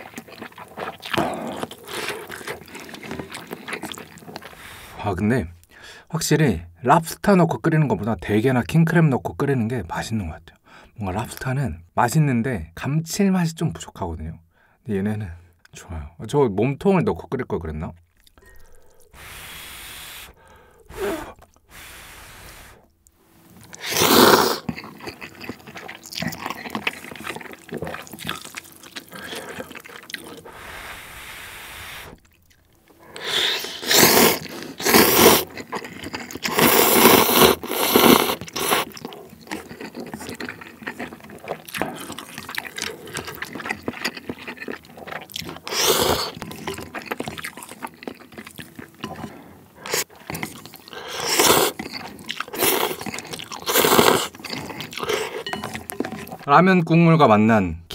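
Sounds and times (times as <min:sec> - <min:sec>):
chewing: 0:00.0 - 0:05.0, 0:18.0 - 0:19.4, 0:20.2 - 0:21.8, 0:22.4 - 0:30.9, 0:32.0 - 0:56.5
slurping noodles: 0:00.0 - 0:05.1, 0:18.2 - 0:22.9, 0:23.6 - 0:56.5.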